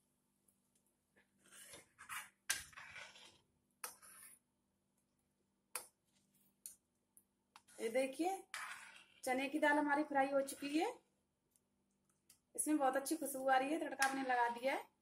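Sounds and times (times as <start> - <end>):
metal ladle scraping a pan: 1.4 - 4.4, 8.4 - 9.3.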